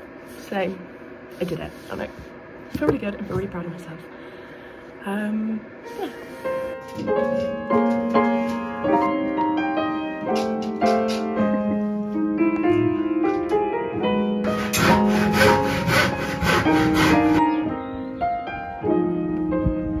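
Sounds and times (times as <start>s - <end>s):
gentle piano melody: 5.8s - 20.0s.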